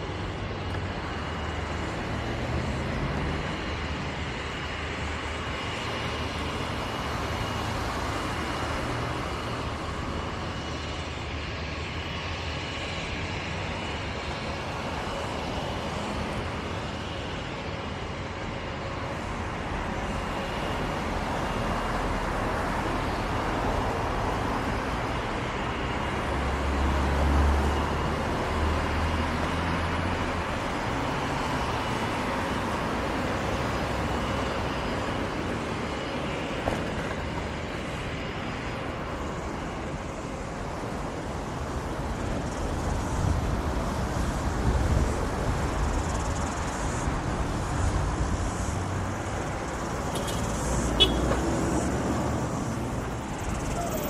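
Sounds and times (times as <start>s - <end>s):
road traffic: 0.0s - 54.0s.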